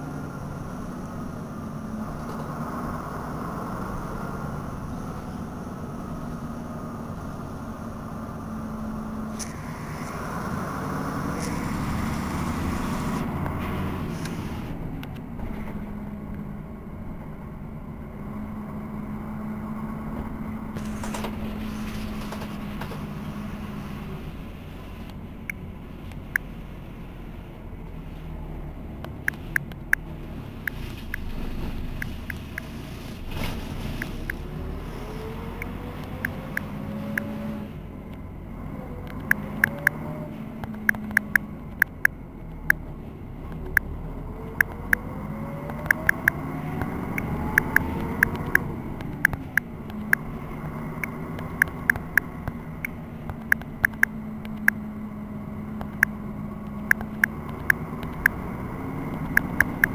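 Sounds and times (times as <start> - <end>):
bus diesel engine idling: 0.0 - 34.4.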